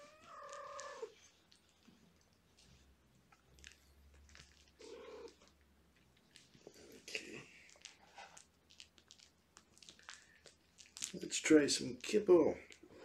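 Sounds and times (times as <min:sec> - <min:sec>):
cat meowing: 0:00.0 - 0:01.1
cat purring: 0:00.0 - 0:05.6
paws scratching on blanket: 0:00.0 - 0:13.0.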